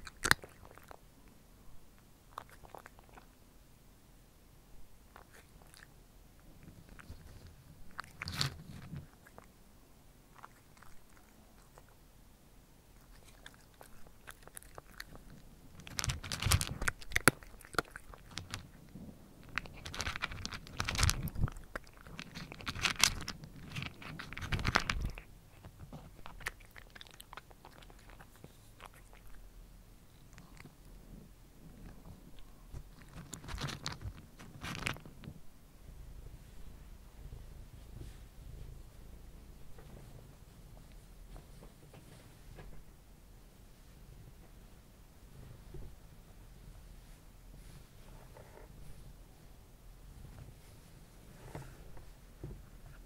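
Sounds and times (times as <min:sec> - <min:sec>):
cat crunching dry kibble: 0:00.0 - 0:01.0, 0:02.3 - 0:03.3, 0:05.1 - 0:05.9, 0:06.5 - 0:09.6, 0:10.3 - 0:12.0, 0:12.9 - 0:29.4, 0:30.1 - 0:31.0, 0:31.6 - 0:35.4.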